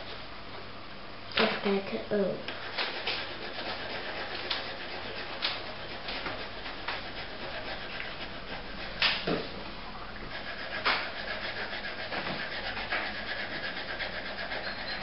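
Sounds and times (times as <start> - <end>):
coloured pencil shading on paper: 2.5 - 9.1, 10.2 - 15.0.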